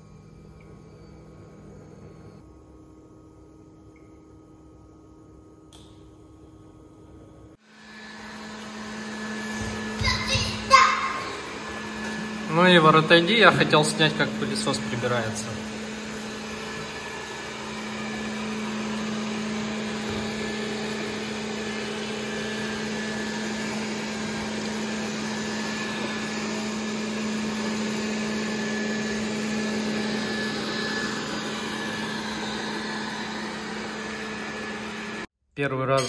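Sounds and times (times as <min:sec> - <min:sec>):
robot vacuum cleaner running: 0:07.6 - 0:35.3.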